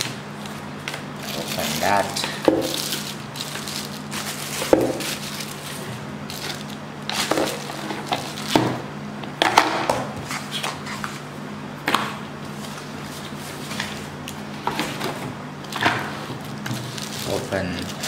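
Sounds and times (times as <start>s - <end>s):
plastic wrap crinkling: 1.2s - 8.6s, 16.4s - 18.0s.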